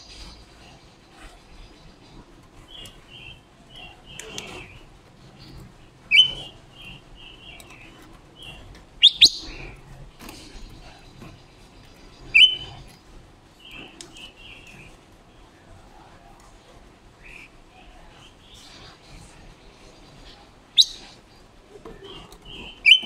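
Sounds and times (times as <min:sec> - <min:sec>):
bird chirping: 0:00.0 - 0:04.8, 0:05.4 - 0:15.0, 0:17.2 - 0:23.0
sharp bird calls: 0:05.4 - 0:09.8, 0:10.4 - 0:13.0, 0:17.2 - 0:21.5, 0:22.1 - 0:23.0.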